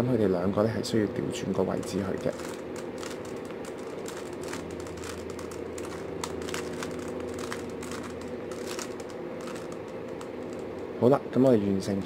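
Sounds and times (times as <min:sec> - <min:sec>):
low background hum: 0:00.0 - 0:12.0
puzzle cube layers clicking: 0:02.2 - 0:10.8.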